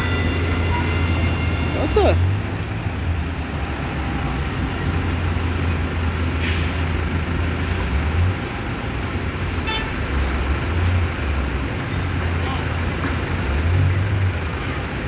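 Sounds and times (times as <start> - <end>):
diesel engines idling: 0.0 - 15.0
air brake hiss: 6.4 - 6.9.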